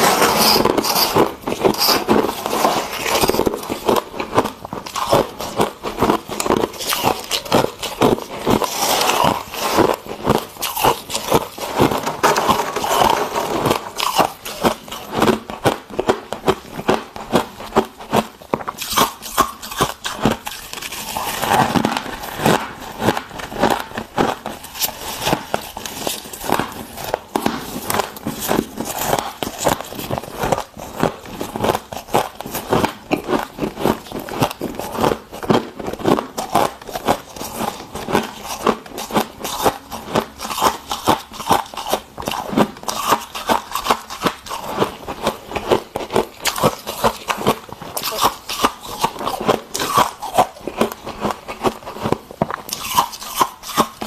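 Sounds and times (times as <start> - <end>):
gloved hands scraping frost: 0.0 - 3.8
chewing crunchy frost: 0.0 - 54.0.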